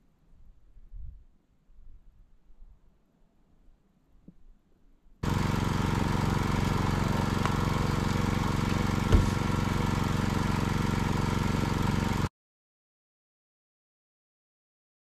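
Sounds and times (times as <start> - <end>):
engine idling: 5.2 - 12.3
thump: 9.0 - 9.4.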